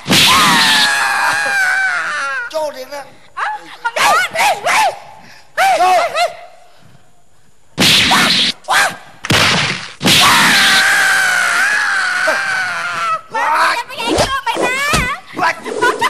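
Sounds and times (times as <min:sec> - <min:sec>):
loud high wavering cry: 0:00.0 - 0:02.5, 0:10.0 - 0:13.3
noisy swishes or hits: 0:07.8 - 0:08.6.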